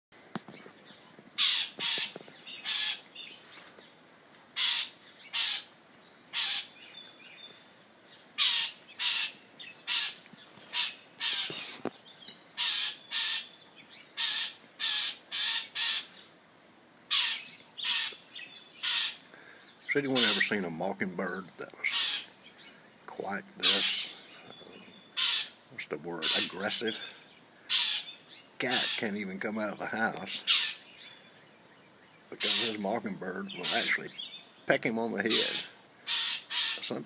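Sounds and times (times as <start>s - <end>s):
bird giving harsh barking calls: 1.4s - 3.3s, 4.6s - 6.9s, 8.4s - 11.8s, 12.5s - 16.3s, 17.1s - 19.4s, 20.1s - 20.6s, 21.8s - 22.4s, 23.6s - 29.2s, 30.3s - 31.1s, 32.3s - 37.0s.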